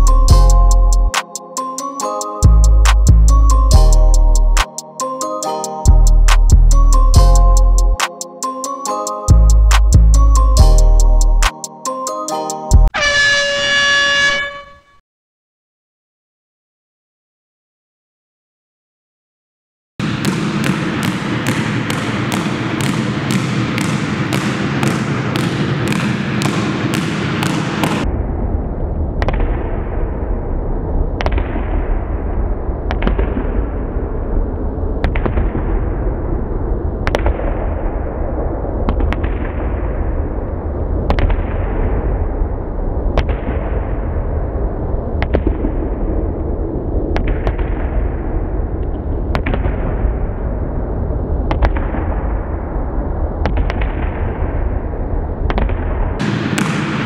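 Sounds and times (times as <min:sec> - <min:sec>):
background music with steady beat: 0:00.0 - 0:13.0
deep bass with sharp hits: 0:05.9 - 0:08.0.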